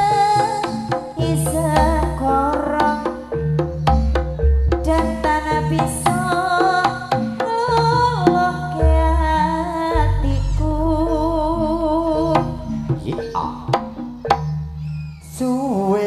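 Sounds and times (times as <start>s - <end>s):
hand-drum strokes: 0.0s - 15.4s
deep bass: 3.4s - 6.0s, 8.2s - 15.2s.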